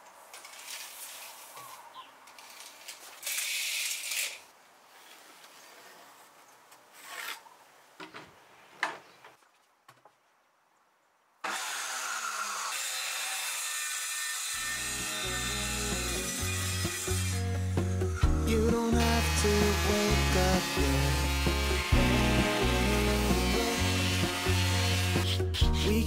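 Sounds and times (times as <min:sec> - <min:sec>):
circular saw cutting wood: 0:02.4 - 0:04.5, 0:11.4 - 0:26.0.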